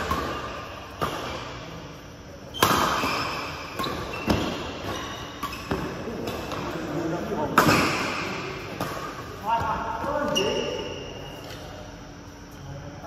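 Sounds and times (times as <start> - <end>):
rackets hitting shuttlecock: 0.0 - 1.8, 2.5 - 6.8, 7.5 - 11.7.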